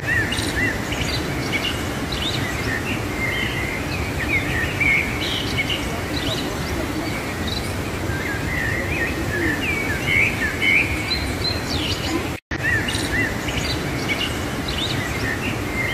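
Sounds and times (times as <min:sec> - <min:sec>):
whitewater rushing: 0:00.0 - 0:12.4
songbirds chirping: 0:00.0 - 0:15.9.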